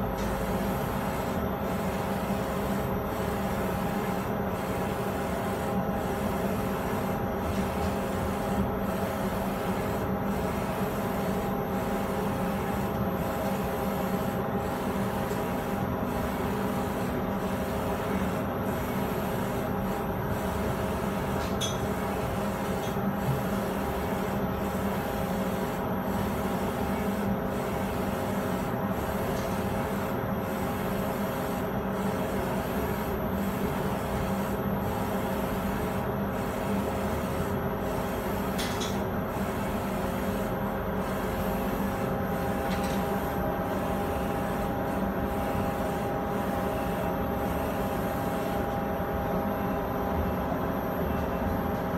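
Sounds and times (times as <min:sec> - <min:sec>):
printer machine hum and hiss: 0:00.0 - 0:51.9.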